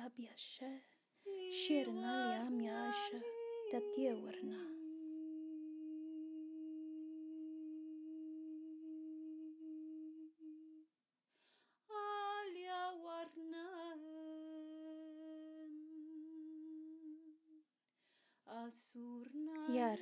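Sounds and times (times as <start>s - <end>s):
woman humming long notes: 1.4s - 10.8s, 14.6s - 17.6s
short breath: 11.3s - 11.8s, 18.0s - 18.4s.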